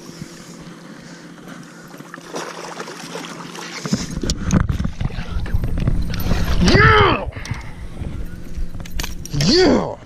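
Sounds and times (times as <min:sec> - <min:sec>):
water splashing against boat: 0:00.0 - 0:07.2
steady low hum: 0:00.0 - 0:10.0
rumbling handling noise: 0:03.7 - 0:10.0.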